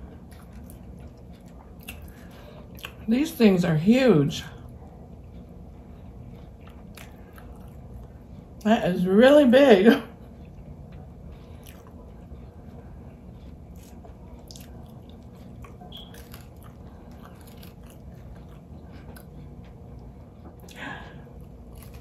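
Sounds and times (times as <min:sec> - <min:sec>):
quiet chewing: 0:00.0 - 0:03.1, 0:04.4 - 0:08.7, 0:10.1 - 0:22.0
crunchy fried food tearing: 0:13.7 - 0:18.6, 0:21.4 - 0:22.0.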